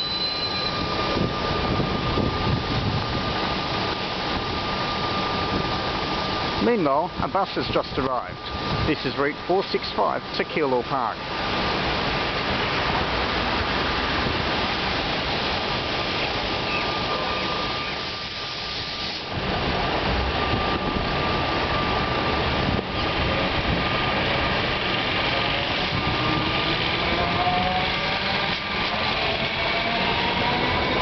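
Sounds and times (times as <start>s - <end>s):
thin high whine: 0.0s - 2.6s
electric train motors whining: 12.4s - 31.0s.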